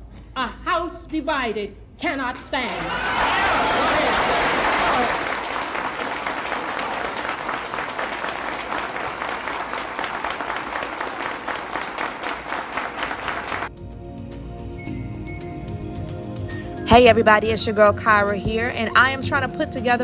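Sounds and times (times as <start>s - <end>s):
audience applauding: 2.4s - 13.7s.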